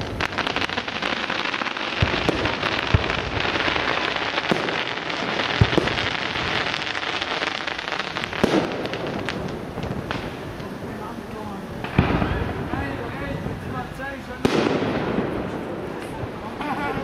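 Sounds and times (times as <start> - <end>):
fireworks crackling: 0.0 - 17.0.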